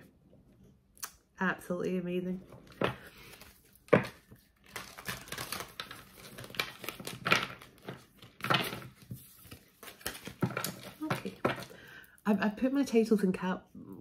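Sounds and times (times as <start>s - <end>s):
cards being shuffled: 2.5s - 11.7s.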